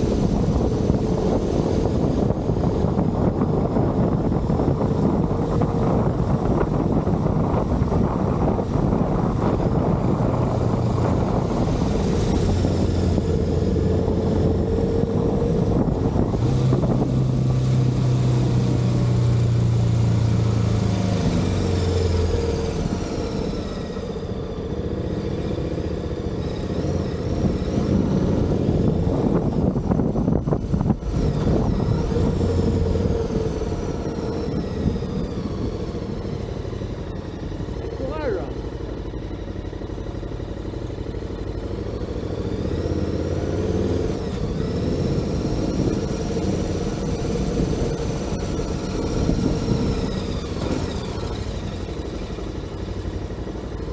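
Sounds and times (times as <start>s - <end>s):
wind noise on microphone: 0.0s - 38.0s, 40.2s - 53.9s
motorcycle engine running: 27.1s - 53.9s.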